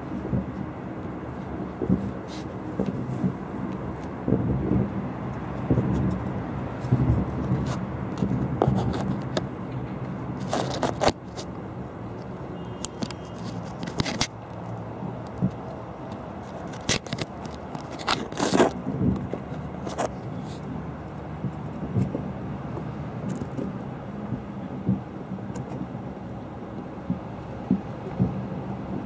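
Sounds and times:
distant fireworks booming: 0:00.0 - 0:08.6, 0:18.8 - 0:29.0.

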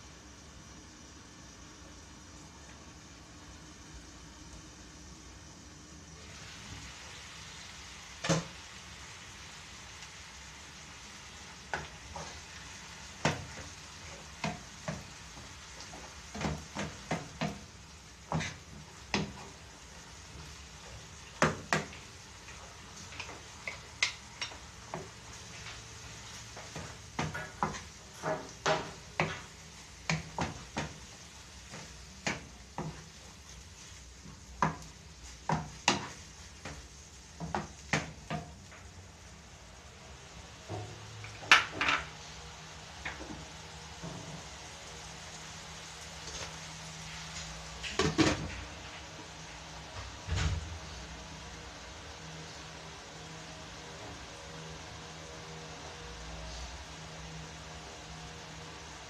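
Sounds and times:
meat sizzling in a pan: 0:00.0 - 0:59.0
wooden spoon knocking on pan: 0:13.2 - 0:13.6, 0:14.4 - 0:15.1, 0:16.3 - 0:17.6, 0:18.3 - 0:19.5, 0:21.4 - 0:21.9, 0:26.6 - 0:31.1, 0:31.7 - 0:33.1, 0:34.6 - 0:38.5.

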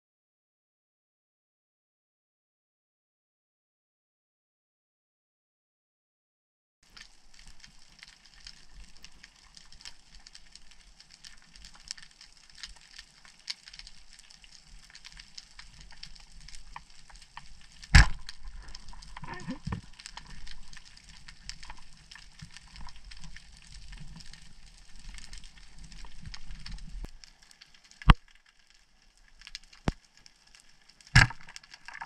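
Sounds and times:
underwater crackle: 0:06.8 - 0:32.0
speargun sharp snap: 0:18.0 - 0:18.2, 0:31.2 - 0:31.4.

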